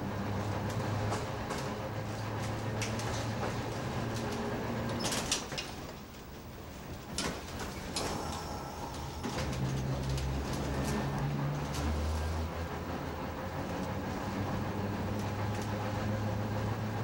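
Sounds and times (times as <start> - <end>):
streetcar running rumble: 0.0 - 17.0
low hum: 7.9 - 12.3.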